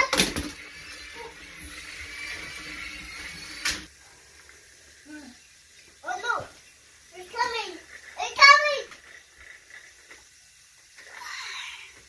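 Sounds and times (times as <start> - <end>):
toy train whirring: 0.0 - 12.0.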